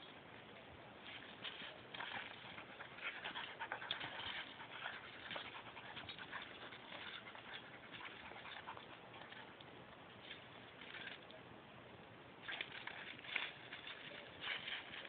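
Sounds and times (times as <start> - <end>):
dogs scuffling on asphalt: 1.1 - 9.6, 12.5 - 15.0.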